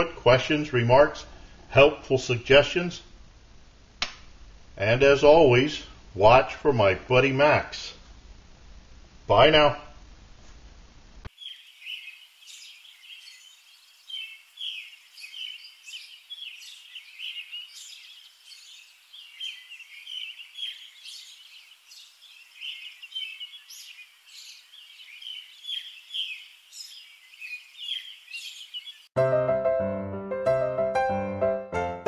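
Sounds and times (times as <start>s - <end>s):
small birds chirping: 11.3s - 29.2s.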